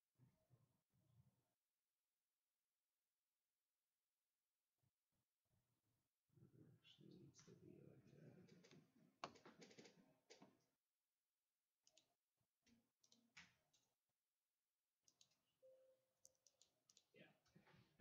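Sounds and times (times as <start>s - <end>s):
computer keyboard typing: 8.6s - 10.4s, 15.1s - 15.4s, 16.2s - 17.1s.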